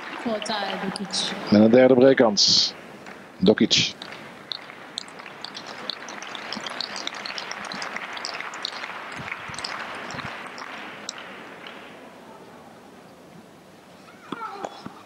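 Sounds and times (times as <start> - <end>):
crowd applause: 0.0 - 1.6, 3.9 - 12.0.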